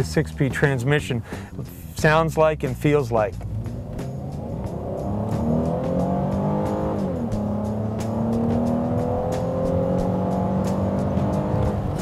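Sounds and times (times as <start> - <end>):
car engine accelerating: 3.1 - 12.0.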